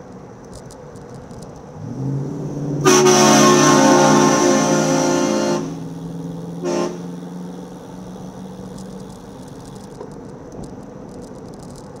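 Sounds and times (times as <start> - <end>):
traffic: 0.0 - 12.0
car horn toot: 2.8 - 7.7.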